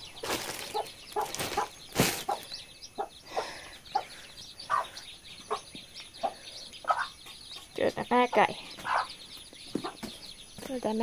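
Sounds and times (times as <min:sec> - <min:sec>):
chicks peeping: 0:00.0 - 0:11.0
hen clucking softly: 0:02.3 - 0:09.2.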